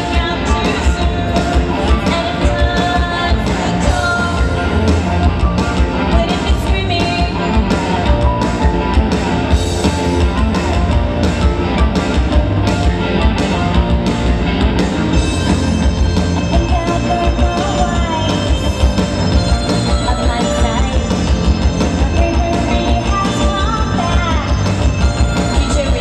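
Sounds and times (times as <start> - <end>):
live rock band playing: 0.0 - 26.0.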